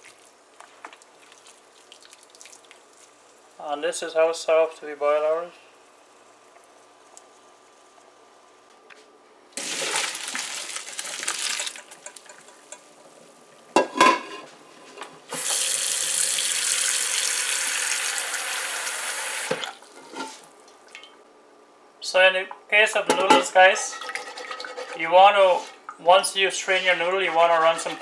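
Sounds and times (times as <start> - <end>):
water splashing into colander: 9.6 - 12.5, 23.9 - 25.0.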